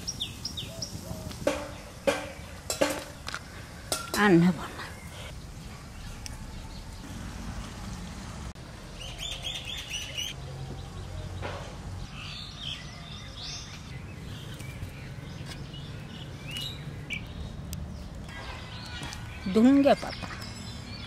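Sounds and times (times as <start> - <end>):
small birds chirping: 0.0 - 8.0, 8.7 - 21.0.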